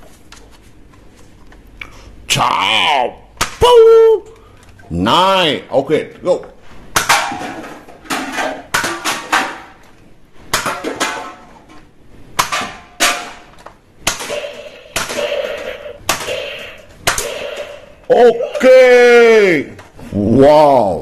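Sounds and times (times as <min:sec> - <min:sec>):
toy gun sharp cracks: 0:14.0 - 0:17.8.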